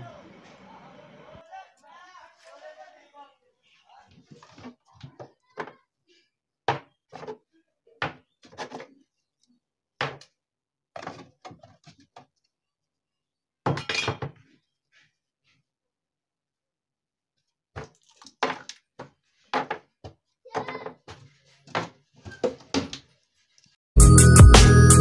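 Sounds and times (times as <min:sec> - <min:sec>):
cupboard items thunking and clattering: 0:17.8 - 0:23.0.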